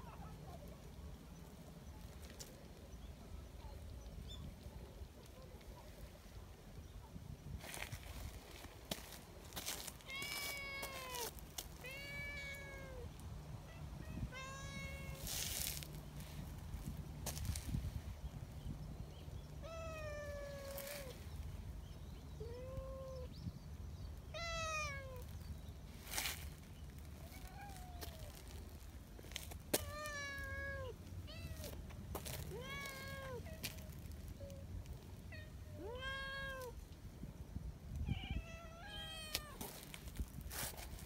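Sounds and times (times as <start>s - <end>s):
rustle: 0.0s - 41.0s
cat meowing: 10.0s - 13.1s, 13.7s - 15.3s, 24.3s - 25.2s, 29.8s - 31.7s, 32.5s - 33.7s, 35.3s - 36.8s.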